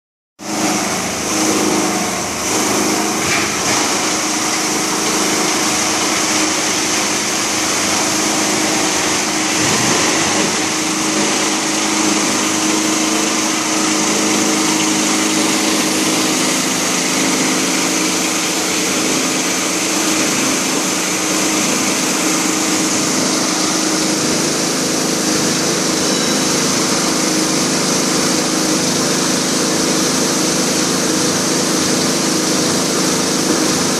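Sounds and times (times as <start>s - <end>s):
machine hum and high whine: 0.4s - 33.9s
plastic crusher crunching: 5.0s - 12.5s.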